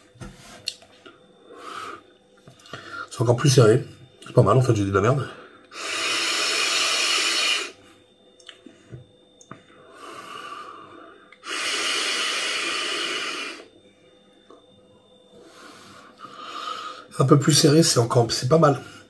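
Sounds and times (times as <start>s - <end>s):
man inhaling from vape: 5.7s - 7.8s, 9.8s - 13.7s.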